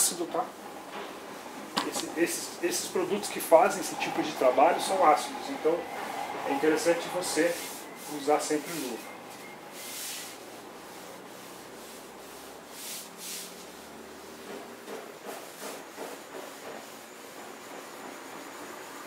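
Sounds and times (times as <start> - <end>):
sponge rubbing on glass: 6.6 - 9.1, 9.7 - 14.4.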